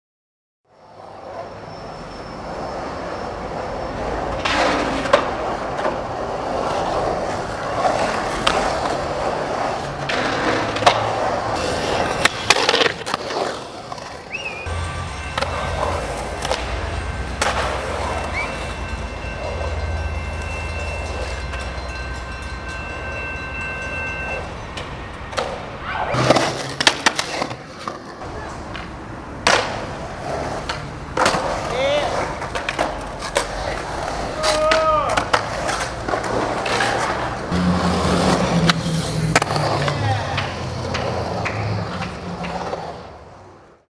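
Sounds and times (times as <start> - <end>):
skateboard wheels rolling on concrete: 0.7 - 43.9
skateboard clacking on concrete: 4.2 - 19.6, 24.8 - 43.5.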